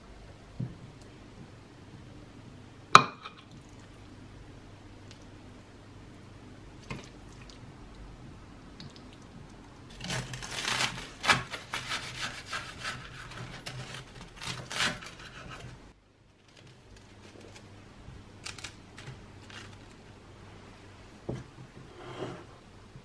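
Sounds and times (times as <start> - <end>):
knife sawing through toast: 10.0 - 15.7.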